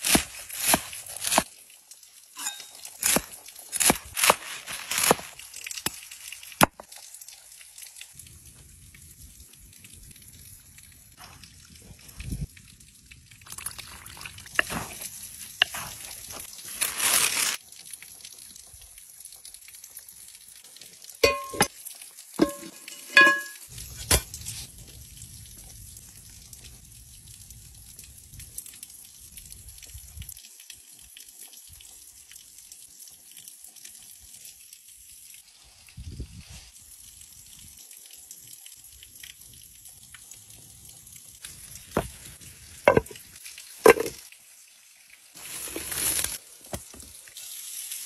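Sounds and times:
dough worked in clay bowl: 0:00.0 - 0:01.5, 0:02.3 - 0:06.0, 0:11.2 - 0:17.6, 0:21.2 - 0:21.7, 0:22.4 - 0:25.7, 0:41.9 - 0:44.3
rustling: 0:02.4 - 0:05.4, 0:14.5 - 0:17.6, 0:45.4 - 0:46.4
oil pouring from glass bottle: 0:42.9 - 0:43.2.

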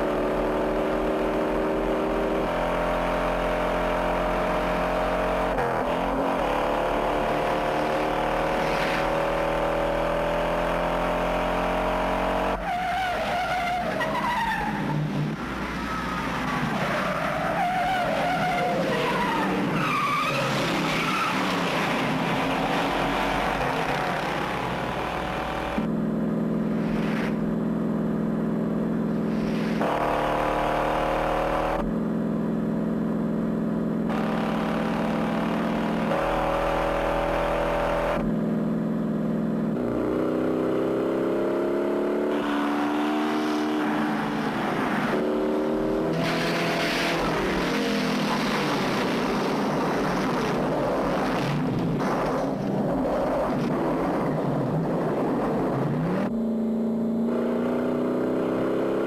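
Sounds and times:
rush of wind and tyres: 0:00.0 - 0:32.6, 0:34.0 - 0:59.0
car engines droning at high speed: 0:00.0 - 0:59.0.

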